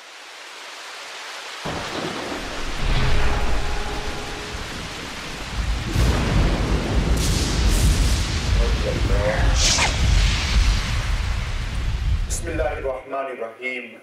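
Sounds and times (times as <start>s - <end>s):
steady rain hiss: 0.0s - 14.0s
deep thunder rumble: 1.7s - 13.0s.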